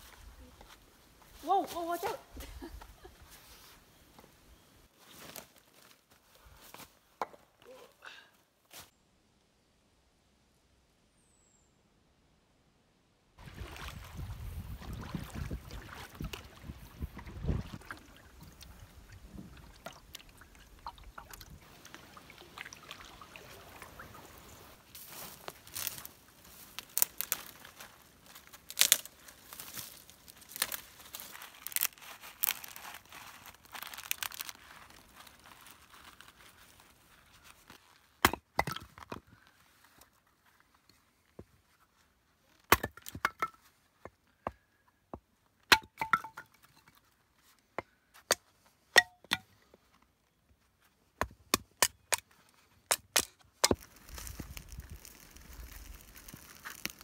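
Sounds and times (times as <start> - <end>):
twigs crackling and snapping: 19.8 - 38.2, 51.8 - 57.0.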